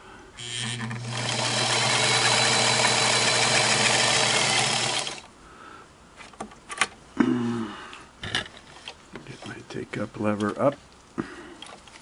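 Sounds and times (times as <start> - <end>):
sewing machine running: 0.4 - 5.3.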